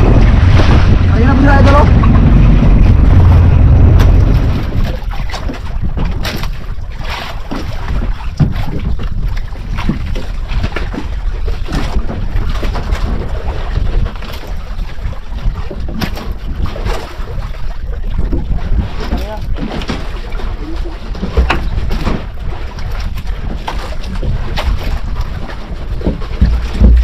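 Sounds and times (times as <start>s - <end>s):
water rushing past boat hull: 0.0s - 27.0s
wind buffeting microphone: 0.0s - 27.0s
irregular knocks: 26.0s - 27.0s.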